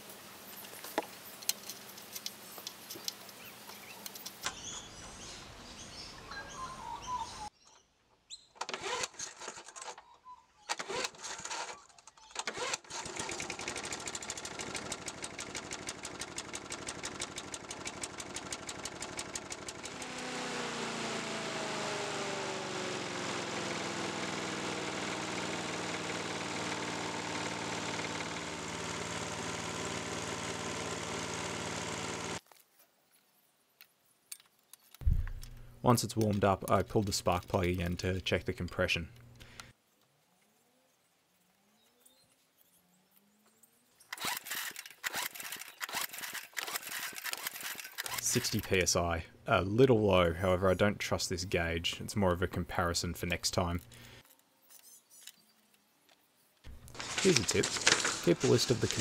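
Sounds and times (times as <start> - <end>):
engine pull-start bursts: 8.6 - 10.0, 10.7 - 32.4, 44.1 - 48.7, 56.7 - 59.0
lawn mower engine running: 12.6 - 32.4, 44.3 - 49.5, 56.7 - 59.0.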